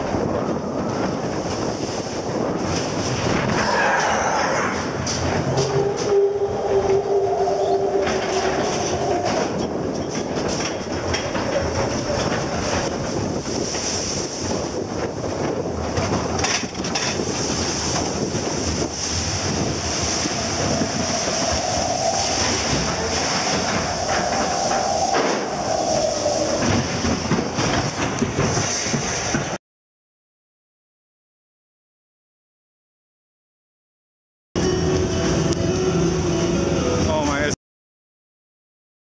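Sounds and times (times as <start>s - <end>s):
roller coaster wheels rumbling and rattling: 0.0s - 29.6s, 34.6s - 37.6s
rushing air: 0.0s - 29.6s
steady whine: 17.8s - 27.5s.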